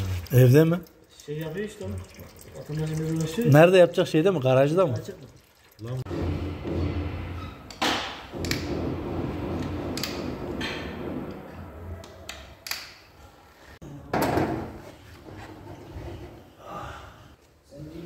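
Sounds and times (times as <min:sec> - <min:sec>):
sharp knocks and clanks: 0:06.1 - 0:12.8.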